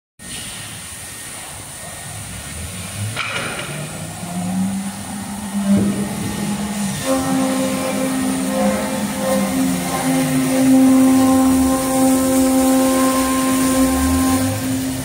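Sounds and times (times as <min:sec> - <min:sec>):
short noisy burst: 0:00.2 - 0:15.0
spindle whine: 0:01.3 - 0:15.0
axis motors humming: 0:01.8 - 0:15.0.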